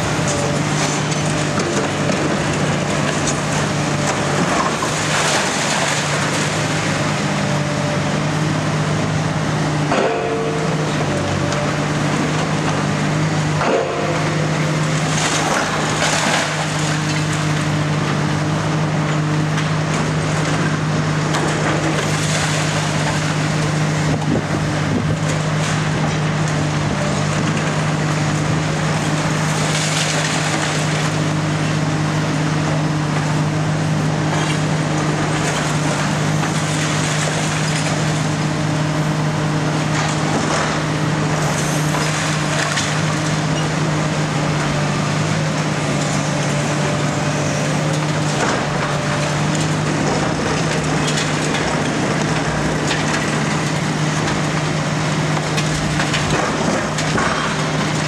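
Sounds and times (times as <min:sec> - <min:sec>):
concrete crunching and clattering: 0:00.0 - 0:07.6, 0:39.8 - 0:58.0
excavator diesel engine drone: 0:00.0 - 0:58.0.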